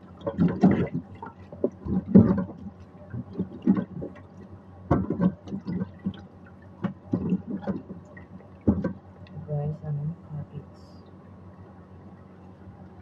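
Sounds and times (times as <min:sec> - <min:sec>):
water splashing in sink: 0:00.2 - 0:04.3, 0:04.9 - 0:06.2, 0:06.8 - 0:08.0, 0:08.7 - 0:08.9.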